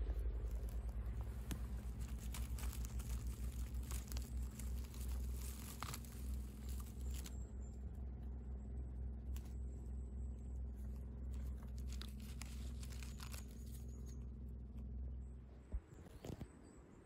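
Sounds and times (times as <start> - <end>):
dry leaves crackling and rustling: 0.0 - 8.0, 9.2 - 14.7
low steady rumble: 0.0 - 17.0.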